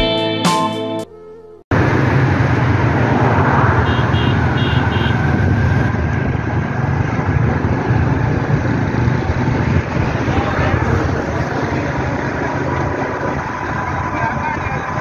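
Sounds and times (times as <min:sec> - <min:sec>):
vehicle road and engine noise: 0:01.7 - 0:15.0.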